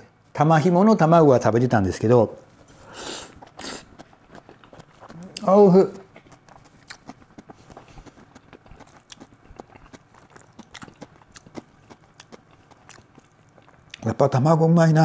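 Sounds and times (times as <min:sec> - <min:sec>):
person chewing: 0:02.5 - 0:14.1.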